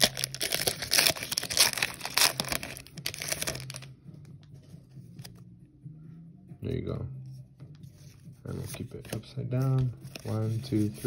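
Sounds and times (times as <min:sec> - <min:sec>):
foil wrapper tearing and crinkling: 0:00.0 - 0:03.9.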